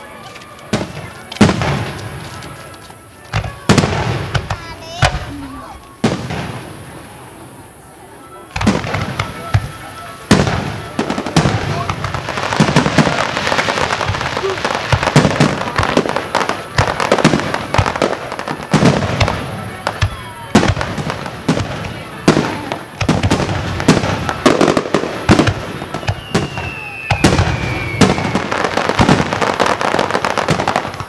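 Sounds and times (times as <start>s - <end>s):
fireworks booming: 0.0s - 31.0s
fireworks crackling: 0.0s - 31.0s
falling firework whistle: 5.2s - 20.8s, 22.3s - 31.0s.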